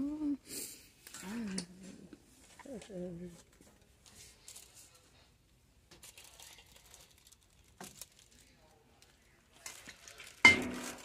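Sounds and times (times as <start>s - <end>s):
plastic wrap crinkling: 2.4s - 5.3s, 5.9s - 11.0s.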